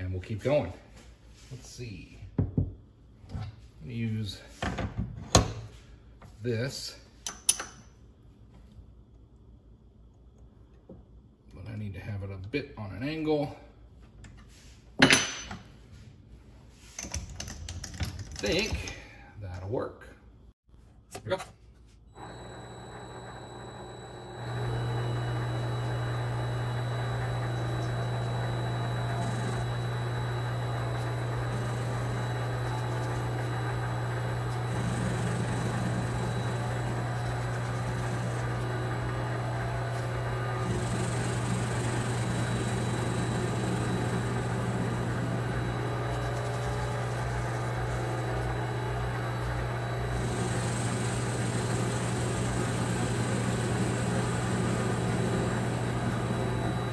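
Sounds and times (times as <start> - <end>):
lathe motor humming: 22.2 - 56.9
lathe tool cutting hiss: 22.2 - 56.9.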